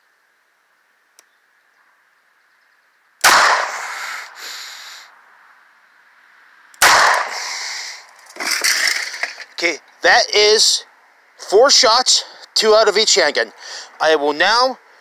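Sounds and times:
revolver shots with echo: 0:03.2 - 0:03.8, 0:06.8 - 0:07.4.

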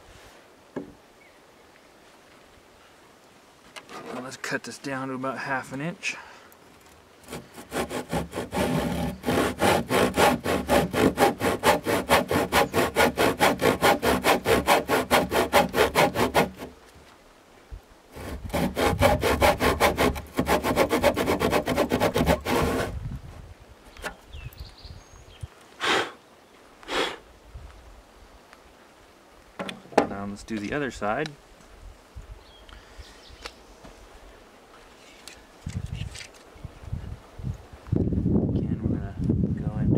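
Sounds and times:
handsaw cutting timber: 0:07.2 - 0:16.8, 0:18.1 - 0:23.0.

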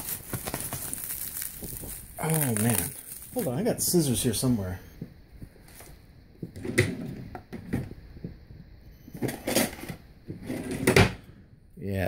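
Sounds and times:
hands rummaging knocks and rustles: 0:00.0 - 0:03.5
plastic wrap crinkling: 0:00.0 - 0:04.5.

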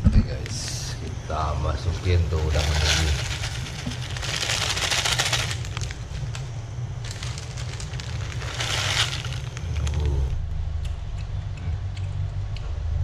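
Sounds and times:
steady low rumble: 0:00.0 - 0:13.0
plastic packet crinkling: 0:02.4 - 0:10.3.

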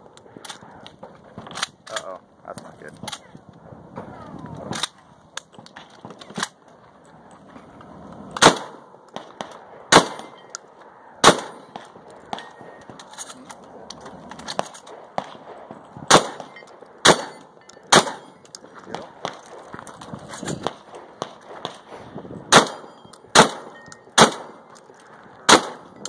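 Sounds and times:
shotgun shots: 0:08.4 - 0:10.4, 0:11.2 - 0:12.8, 0:14.9 - 0:18.3, 0:22.5 - 0:24.7, 0:25.4 - 0:25.9.

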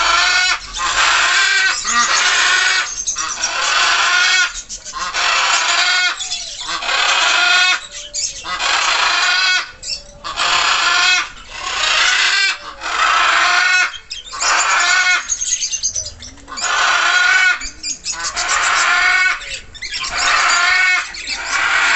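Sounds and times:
budgerigars chattering and warbling: 0:00.0 - 0:21.9.

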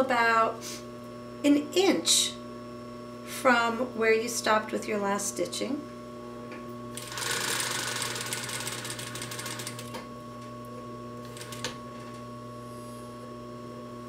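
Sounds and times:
sewing machine stitching: 0:07.0 - 0:10.0.

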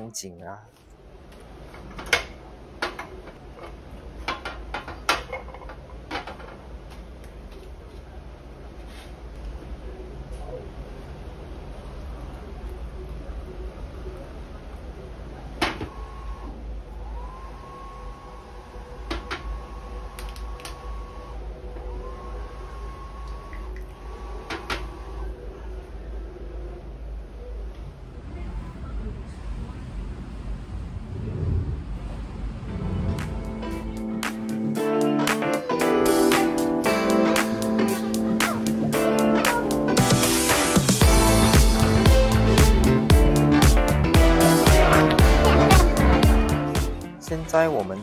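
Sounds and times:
faint hum rising in pitch: 0:25.0 - 0:47.4
steady low rumble: 0:26.8 - 0:34.8.

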